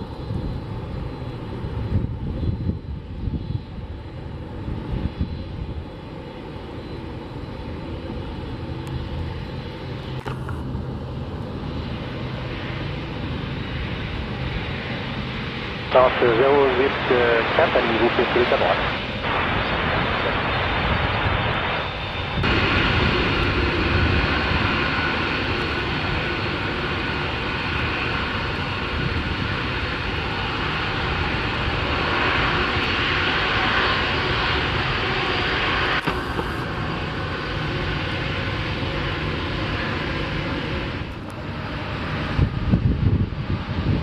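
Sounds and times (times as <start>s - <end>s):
jet engines roaring: 0.0s - 44.0s.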